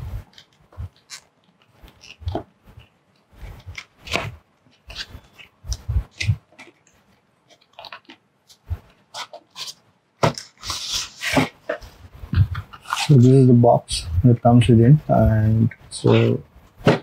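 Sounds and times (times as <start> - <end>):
cardboard rustling and scraping: 0.0 - 13.4, 16.0 - 17.0
cardboard crackling: 0.2 - 13.4.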